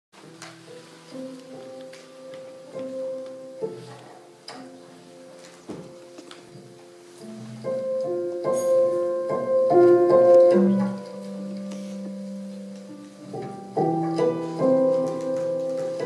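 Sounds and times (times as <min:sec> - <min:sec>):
slow piano music: 0:00.2 - 0:16.0.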